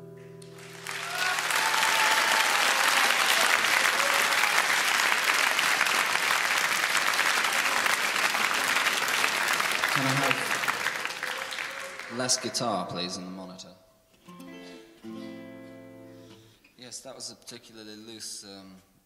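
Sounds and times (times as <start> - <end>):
audience applauding: 0.5 - 13.2.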